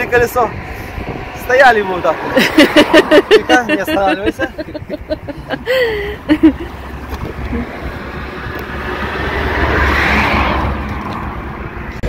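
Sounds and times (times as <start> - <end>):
vehicle passing whoosh: 0.0 - 12.0
wind rumble on microphone: 0.0 - 12.0.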